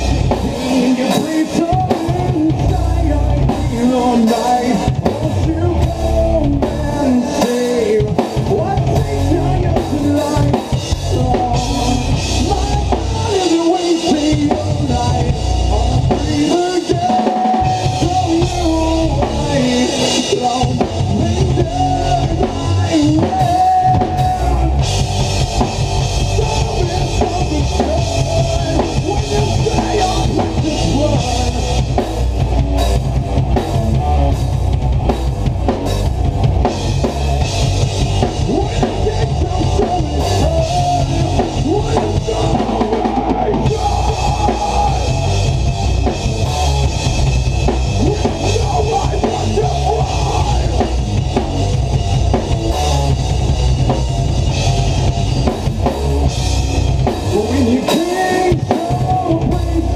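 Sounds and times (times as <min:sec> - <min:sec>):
distorted electric guitars: 0:00.0 - 0:59.9
drum kit pounding: 0:00.0 - 0:59.9
rock band playing loudly: 0:00.0 - 0:59.9.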